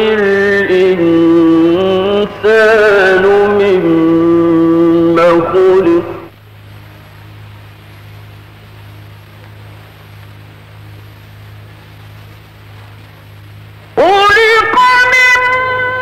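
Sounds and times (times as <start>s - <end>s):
low mains hum: 0.0s - 16.0s
recording hiss: 0.0s - 16.0s.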